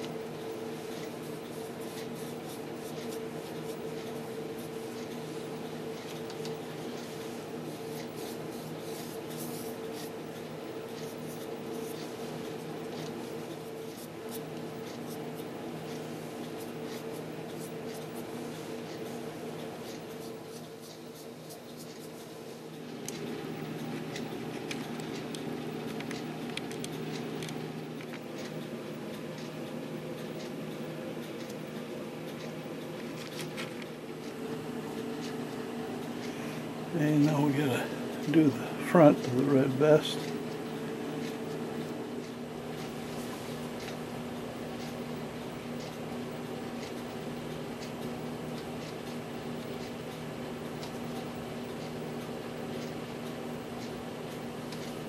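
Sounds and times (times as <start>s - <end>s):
steady background hum: 0.0s - 55.0s
paintbrush strokes: 0.6s - 5.4s, 6.0s - 10.3s, 10.9s - 22.6s.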